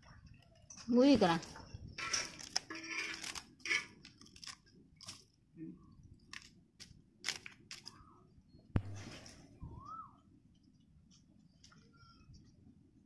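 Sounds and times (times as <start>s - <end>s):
metal spatula crunching charred leaf: 2.0s - 5.4s.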